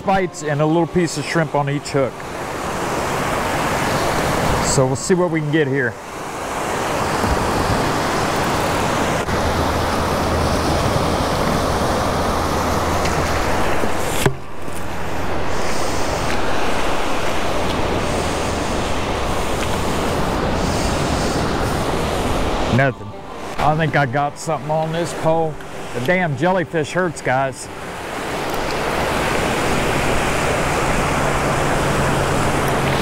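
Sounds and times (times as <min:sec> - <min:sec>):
surf washing on beach: 0:00.0 - 0:33.0
wind on microphone: 0:06.0 - 0:26.2.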